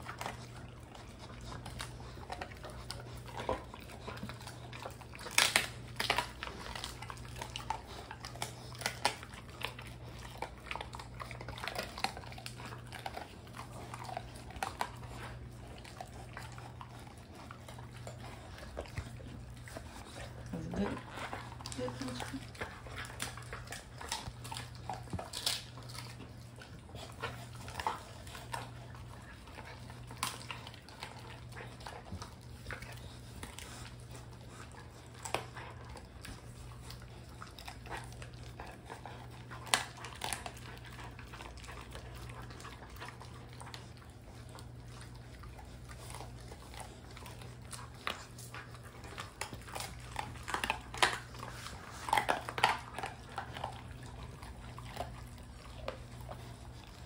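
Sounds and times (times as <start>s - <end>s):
puppies chewing bones: 0.0s - 57.0s
bone crunching: 1.5s - 15.6s, 22.4s - 29.0s.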